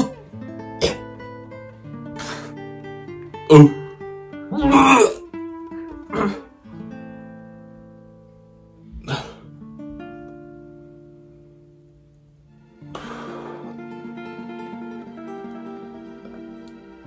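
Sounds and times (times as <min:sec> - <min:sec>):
plucked acoustic guitar music: 0:00.0 - 0:17.0.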